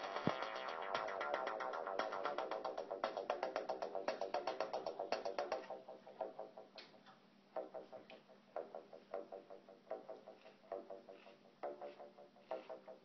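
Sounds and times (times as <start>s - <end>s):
synthesizer ticking notes: 0.0s - 6.8s.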